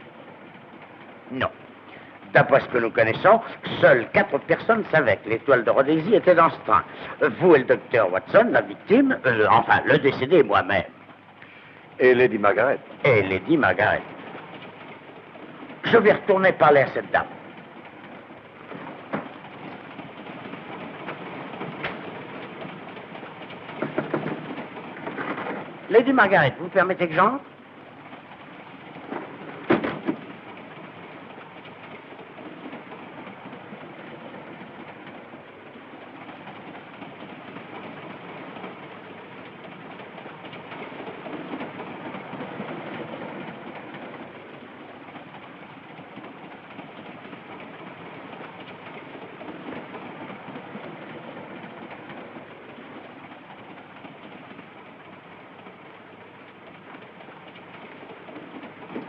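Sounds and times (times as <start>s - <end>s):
train carriage rail rumble: 0.0s - 59.0s.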